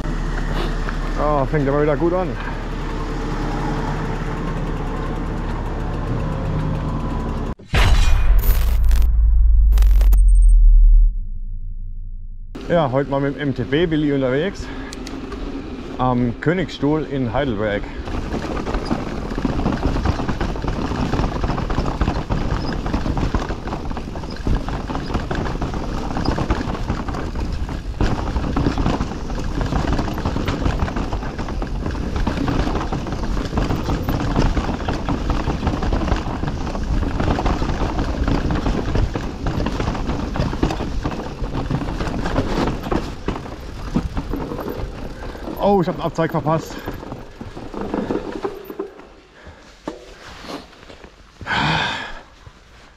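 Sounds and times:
bike rattling and knocking: 12.6s - 51.6s
bike tyres on dirt and roots: 12.6s - 52.9s.

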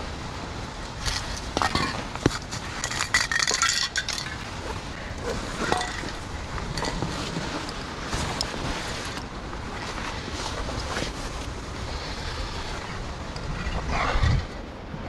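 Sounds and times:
metal spray cans clinking together: 2.8s - 4.4s.

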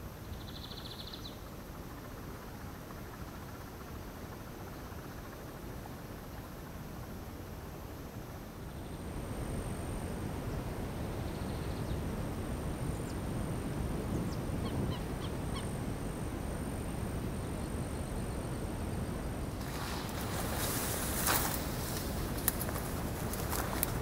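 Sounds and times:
low rumbling microphone noise: 9.0s - 24.0s
rustling: 19.6s - 24.0s.

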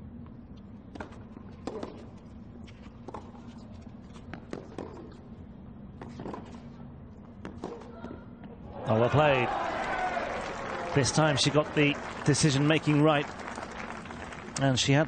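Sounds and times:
low background hum: 0.0s - 15.0s
tennis ball bouncing: 0.9s - 2.1s.

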